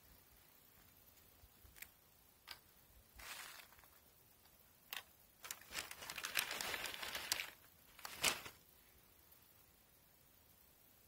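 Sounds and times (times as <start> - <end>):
paper bag crinkling: 3.2 - 4.0, 4.9 - 8.6.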